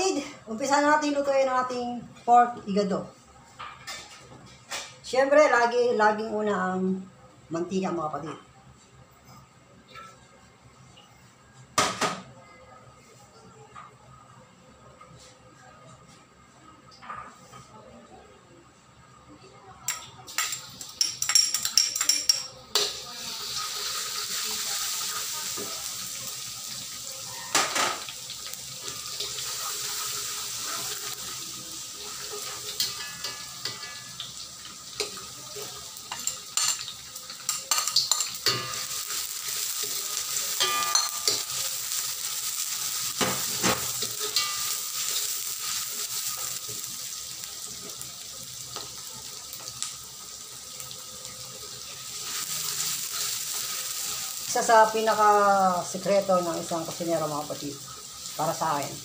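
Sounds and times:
garlic sizzling in hot oil: 22.7s - 59.0s.

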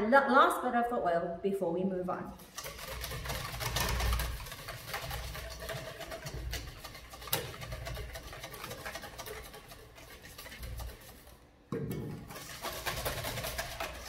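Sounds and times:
wire whisk scraping metal bowl: 2.4s - 11.5s, 12.2s - 14.0s
whisk clinking on bowl: 2.5s - 11.4s.

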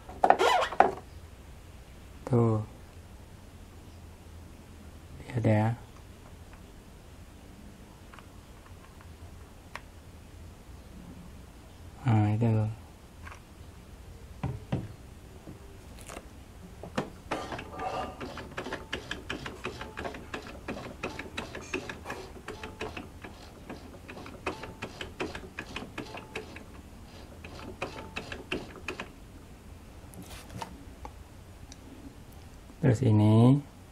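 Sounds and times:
sewing machine mechanism clicking: 17.3s - 29.1s.

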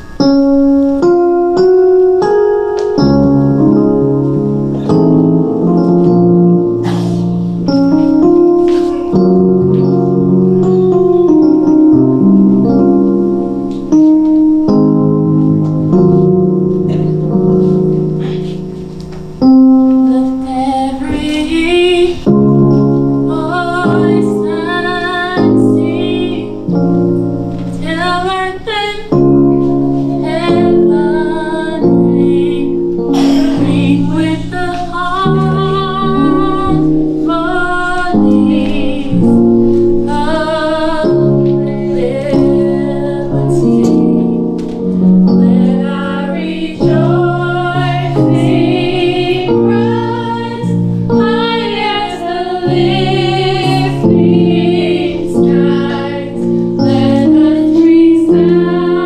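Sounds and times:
sustained piano chords: 0.0s - 59.0s
woman singing with vibrato: 20.1s - 22.3s, 23.3s - 26.8s, 27.8s - 29.2s, 30.1s - 44.5s, 45.4s - 59.0s.

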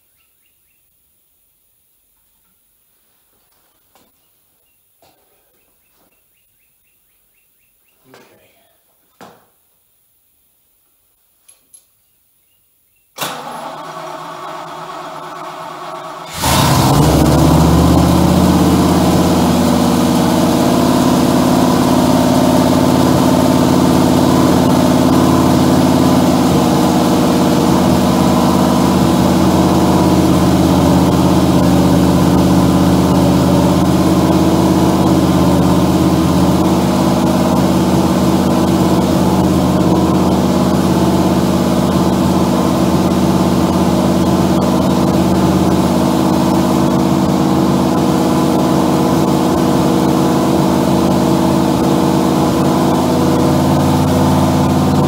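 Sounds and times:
car engine running steadily: 13.3s - 55.0s.

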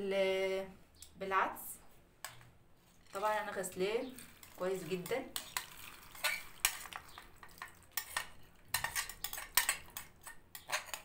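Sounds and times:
knife scraping and tapping plate: 6.2s - 11.0s.

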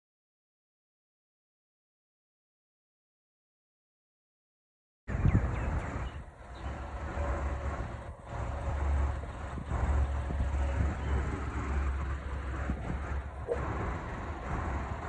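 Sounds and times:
road traffic noise: 5.1s - 15.0s
vehicle engine rumbling: 5.1s - 15.0s.

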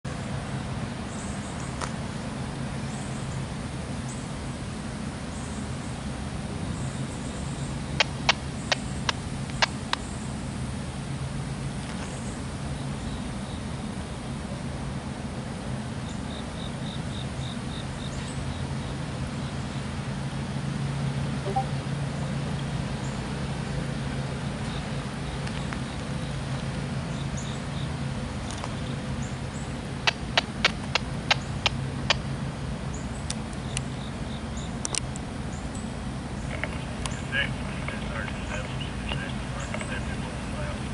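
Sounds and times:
distant locomotive engine drone: 0.1s - 40.9s
sharp clicks: 8.0s - 10.0s, 30.1s - 32.3s, 34.8s - 35.2s
faint bird chirps: 21.5s - 21.8s
distant diesel locomotive rumbling: 35.4s - 40.9s.

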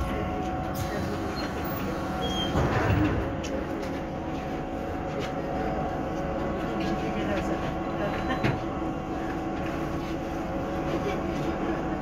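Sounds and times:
bus rumble: 0.0s - 12.0s.

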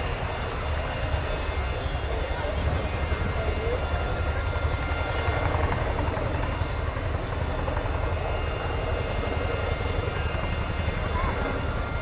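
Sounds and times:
high-pitched turbine whine: 0.0s - 12.0s.

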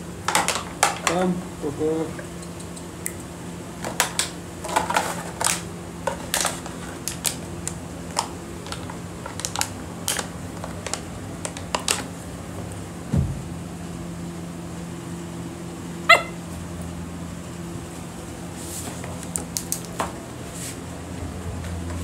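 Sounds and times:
plastic bottle crackling and clattering: 3.9s - 7.4s, 8.1s - 12.1s.

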